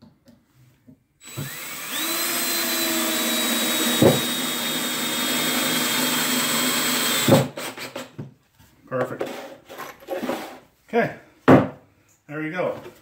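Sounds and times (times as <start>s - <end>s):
cordless drill whining: 1.2s - 8.1s
knock: 11.5s - 11.8s.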